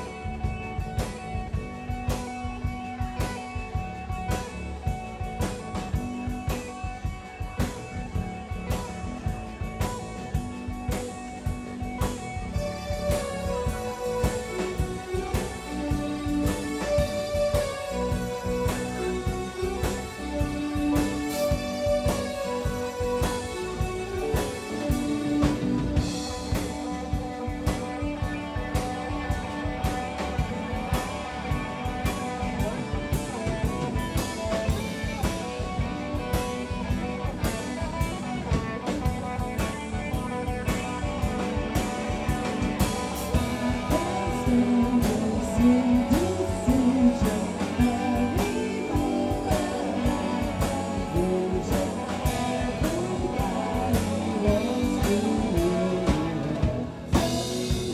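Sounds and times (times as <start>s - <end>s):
bass guitar: 0.0s - 57.9s
drum kit beat: 0.0s - 57.9s
electric guitar: 0.0s - 57.9s
keyboard: 0.0s - 57.9s.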